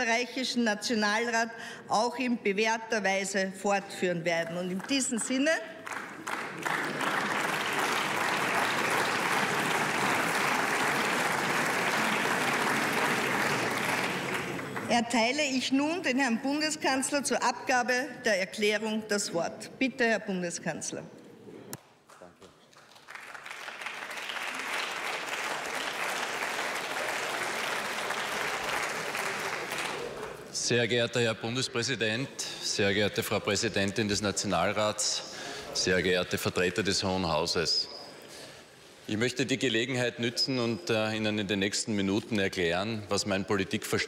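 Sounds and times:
applause in a chamber: 4.4 - 15.0, 22.0 - 30.6.

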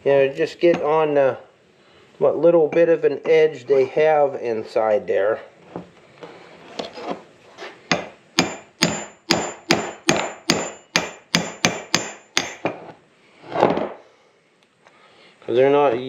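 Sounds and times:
hammer striking steel punch: 7.9 - 12.8.

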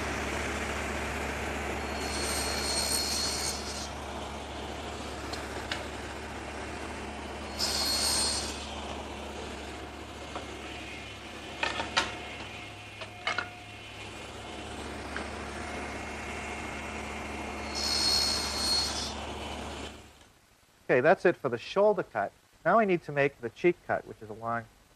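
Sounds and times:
table saw running: 0.0 - 12.8, 13.8 - 20.1
saw blade cutting wood: 1.8 - 4.0, 7.5 - 8.7, 17.6 - 19.2.

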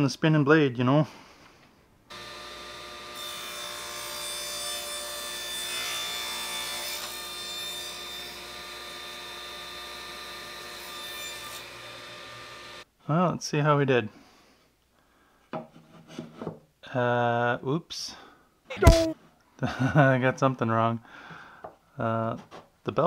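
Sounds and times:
table saw running: 2.1 - 6.8, 8.4 - 12.8
saw blade cutting wood: 2.1 - 12.8.

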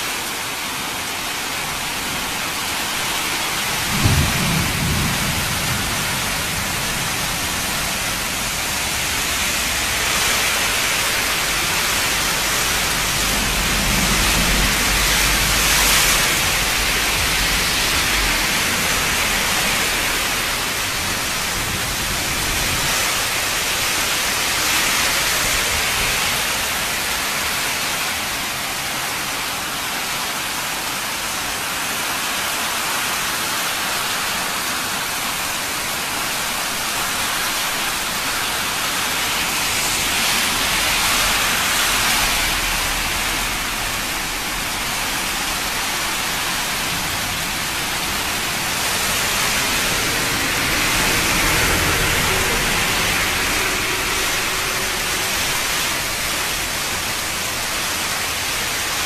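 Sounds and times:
heavy rain pouring: 0.0 - 59.0
runoff water rushing: 0.0 - 59.0.

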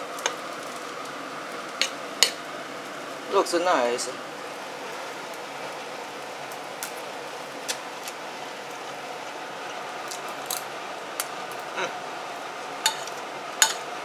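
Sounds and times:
steady background hiss: 0.0 - 14.0
cutlery clinking on a plate: 12.9 - 13.8.

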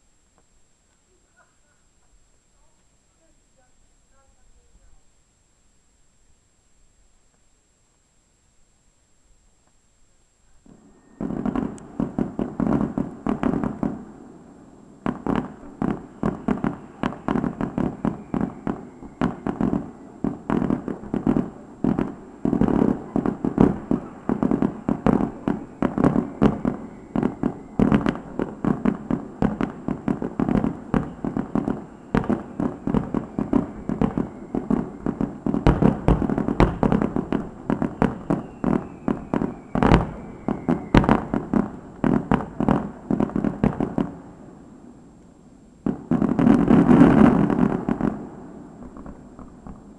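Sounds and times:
fireworks banging: 10.7 - 44.5, 45.8 - 49.9.

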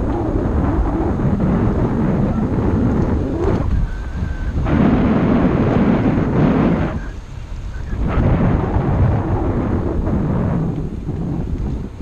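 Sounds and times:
wind buffeting microphone: 0.0 - 12.0
faint thin whistle tone: 3.8 - 4.6, 6.9 - 8.0.

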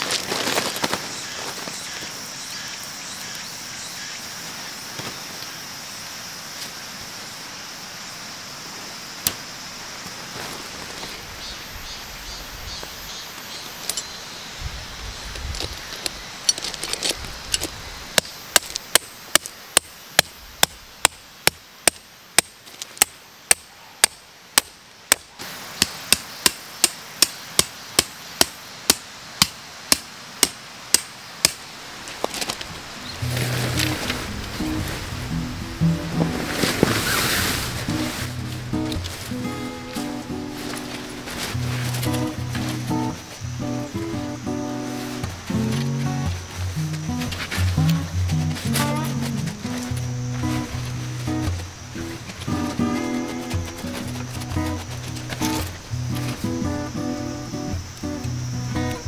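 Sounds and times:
handling sounds: 32.1 - 35.3, 35.9 - 43.4.

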